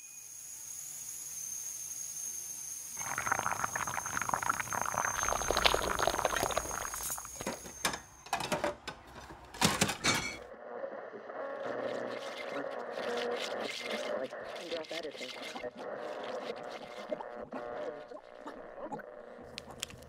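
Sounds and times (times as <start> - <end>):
coffee maker whine: 2.0 - 8.1
coffee gurgling into carafe: 3.0 - 7.7, 11.7 - 20.0.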